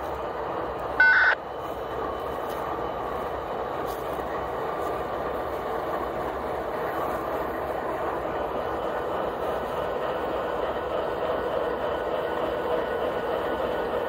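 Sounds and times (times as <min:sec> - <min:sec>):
diesel locomotives idling: 0:00.0 - 0:14.0
short loud beep: 0:01.0 - 0:01.4.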